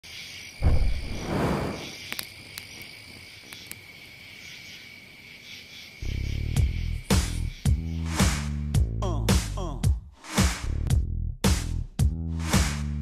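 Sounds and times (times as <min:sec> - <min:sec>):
loud rustle: 0:00.6 - 0:02.0
music: 0:06.0 - 0:13.0.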